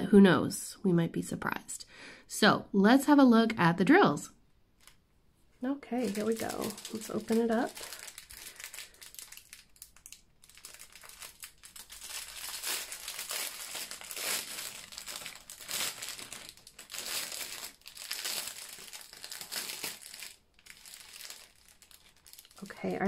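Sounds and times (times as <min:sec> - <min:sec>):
plastic packaging crinkling: 0:05.9 - 0:23.0.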